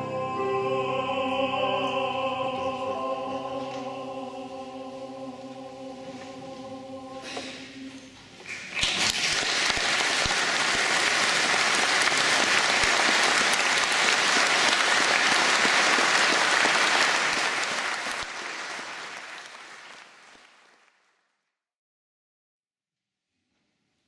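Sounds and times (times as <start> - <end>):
audience applauding: 8.8 - 21.0.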